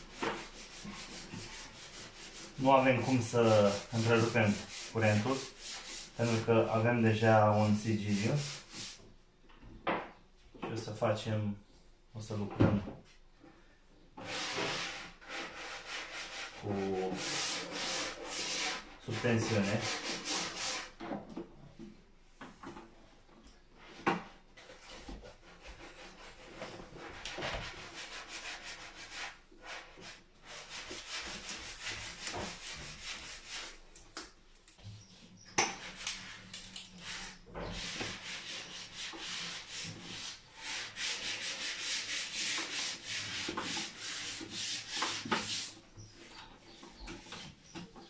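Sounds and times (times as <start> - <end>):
wires scraping against board: 0.0 - 6.5, 23.8 - 48.0.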